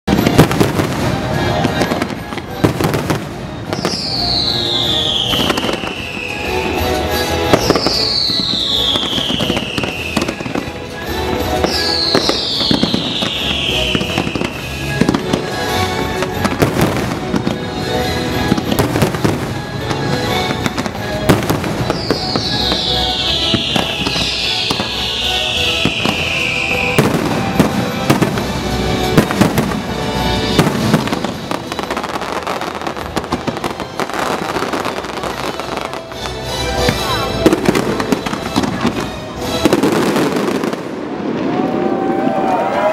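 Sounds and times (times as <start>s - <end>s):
fireworks bursting and crackling: 0.0s - 42.9s
music soundtrack: 0.1s - 42.9s
long falling whistle: 3.7s - 10.6s, 11.6s - 14.9s, 21.9s - 27.5s.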